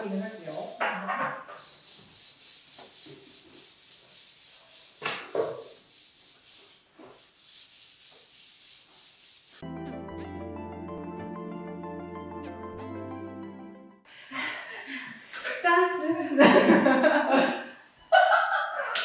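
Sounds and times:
spatulas rasping on sandpaper: 0.0 - 9.6
soft music: 9.6 - 14.1.

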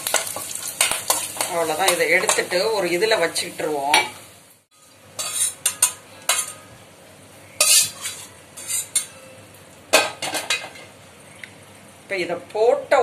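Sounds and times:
hot oil hissing: 0.0 - 6.5
spoon scraping a steel pan: 5.2 - 6.7, 7.6 - 9.2.

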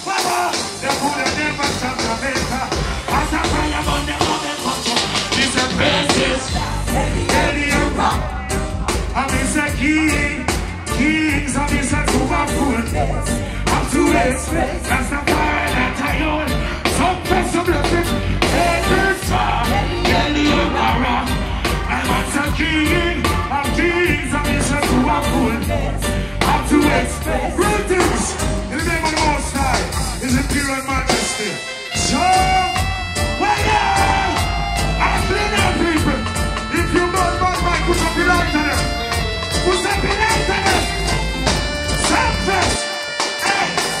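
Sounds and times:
heavy bass line: 0.0 - 44.0
live reggae band playing: 0.0 - 44.0
person singing: 41.8 - 44.0.

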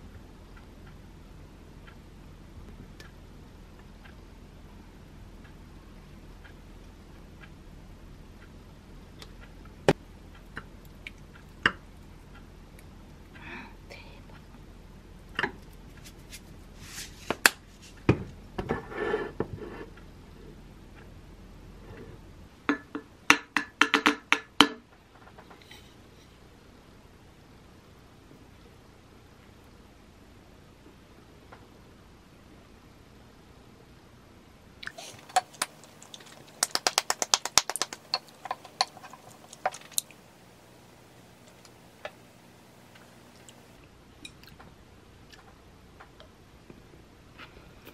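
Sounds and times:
ceramic bowl rubbing: 34.9 - 40.0
rapid hand claps: 35.3 - 38.9.

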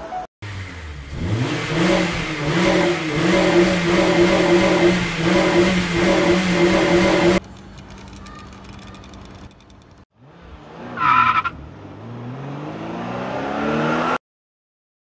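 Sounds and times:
car engine revving: 0.5 - 7.4, 10.2 - 14.2.

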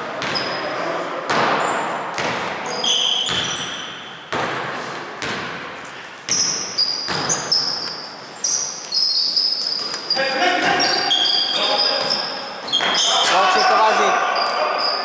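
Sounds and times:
sneakers squeaking on floor: 0.0 - 4.5, 6.2 - 15.0
basketball bouncing on wooden floor: 6.3 - 7.7.

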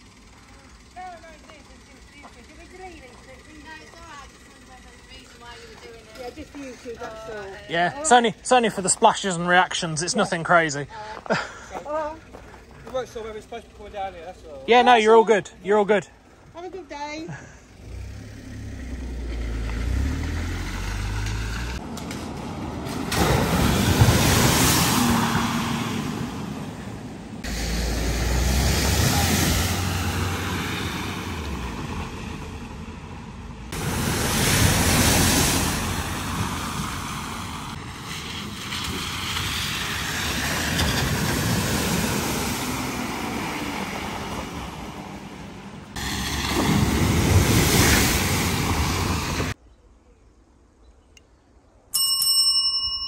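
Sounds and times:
car engine noise: 0.0 - 49.6
water splashing off wheels: 19.3 - 32.9, 33.7 - 49.6
bell-like ding: 52.0 - 53.0.

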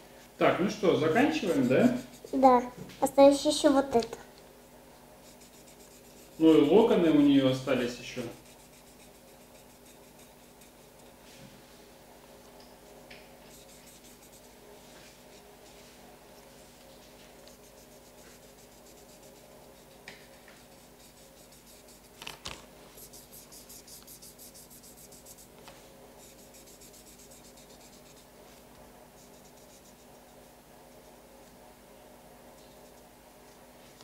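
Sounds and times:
colouring strokes scratching on paper: 0.7 - 2.7, 5.2 - 7.3, 8.2 - 11.3, 13.5 - 16.0, 17.0 - 22.2, 22.9 - 25.6, 26.2 - 28.6, 29.2 - 31.2.

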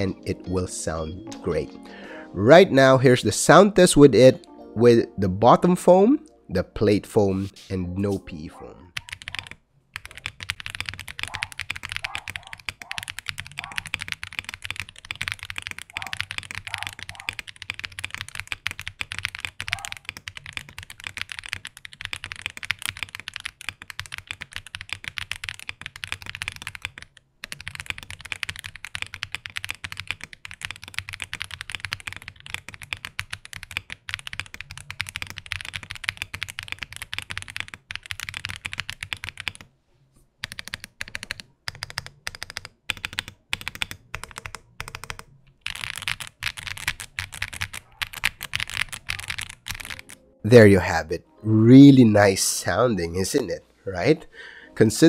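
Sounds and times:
mechanical keyboard typing: 8.9 - 39.7, 40.4 - 50.2.

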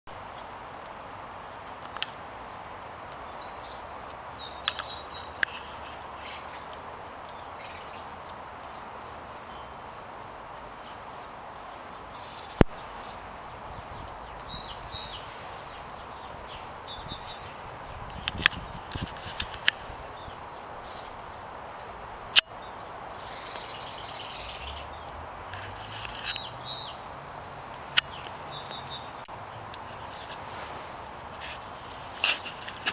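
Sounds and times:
outdoor background hiss: 0.1 - 32.9
bird chirps and trill: 13.8 - 18.2, 22.4 - 24.9.

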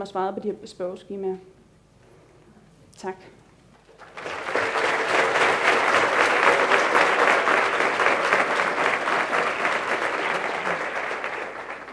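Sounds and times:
audience applauding: 3.9 - 11.9.

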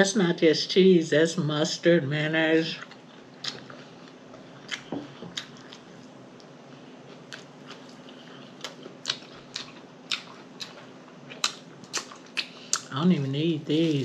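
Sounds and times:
close-miked chewing: 2.6 - 14.0.

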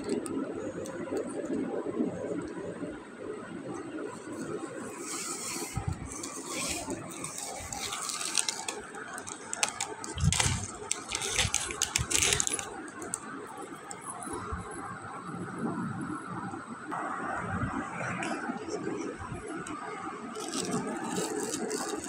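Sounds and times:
plastic bag crinkling: 4.2 - 14.0, 20.3 - 22.0.

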